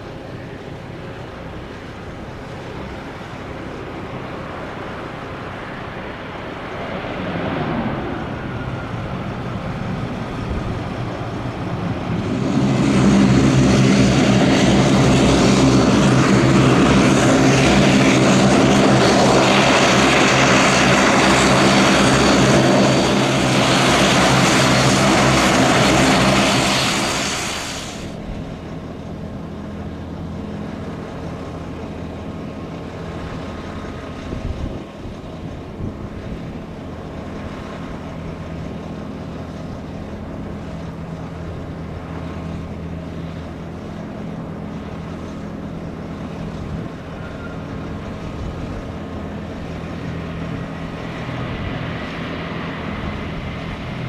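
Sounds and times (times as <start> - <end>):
distant turboprop drone: 0.0 - 54.0
turboprop propeller drone: 0.0 - 54.0.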